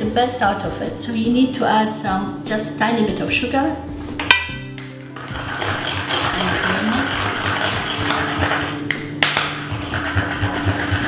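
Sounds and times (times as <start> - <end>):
mortar and pestle grinding: 4.3 - 11.0.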